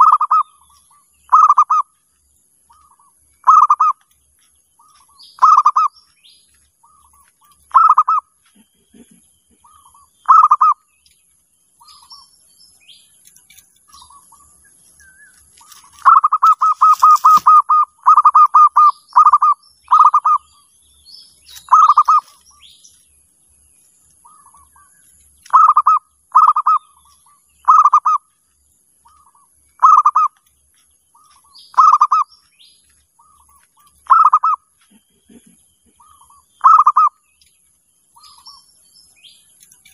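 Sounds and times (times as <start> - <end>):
dove cooing: 0.0 - 0.6, 1.3 - 1.9, 2.8 - 4.0, 4.8 - 6.0, 6.8 - 10.8, 15.7 - 20.4, 21.6 - 22.4, 25.5 - 26.9, 27.6 - 28.2, 29.1 - 30.3, 31.2 - 32.3, 33.2 - 37.2.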